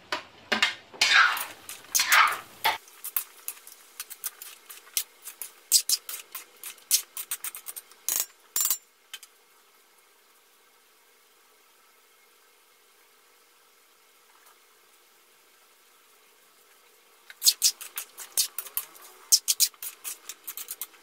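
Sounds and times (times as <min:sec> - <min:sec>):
metal spoon scraping wok: 0:01.0 - 0:08.8, 0:17.4 - 0:21.0.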